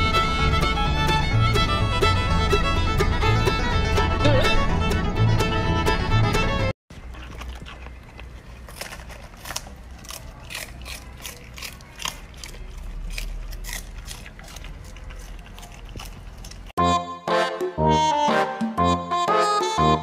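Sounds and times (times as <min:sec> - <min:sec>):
dog crunching cabbage leaves: 0:06.9 - 0:16.8.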